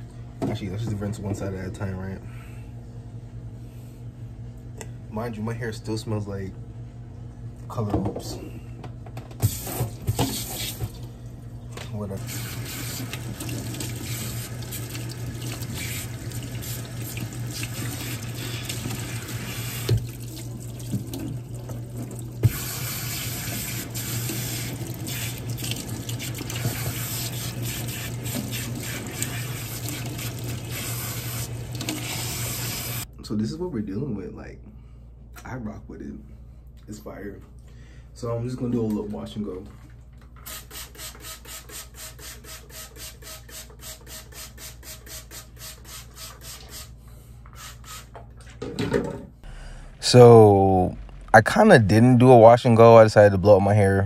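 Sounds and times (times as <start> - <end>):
water splashing into metal sink: 12.3 - 32.9.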